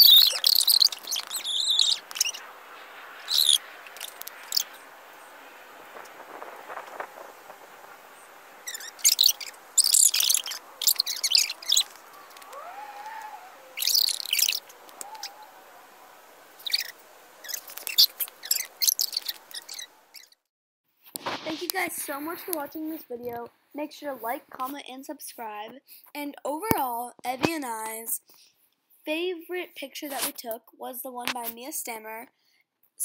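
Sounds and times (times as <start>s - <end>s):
faint steady hiss: 0.0s - 20.3s, 21.0s - 30.5s
sped-up voices chirping: 0.0s - 20.3s.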